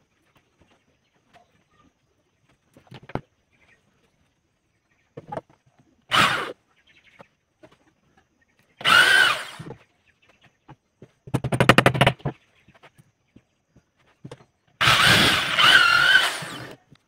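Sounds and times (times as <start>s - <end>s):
electric drill boring into wood: 6.1s - 6.6s, 8.8s - 9.8s, 14.8s - 16.8s.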